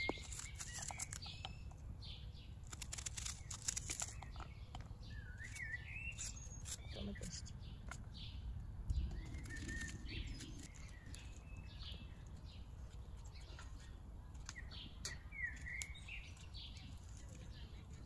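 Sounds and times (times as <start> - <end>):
small birds chirping: 0.0 - 18.0
low rumble: 7.4 - 13.3.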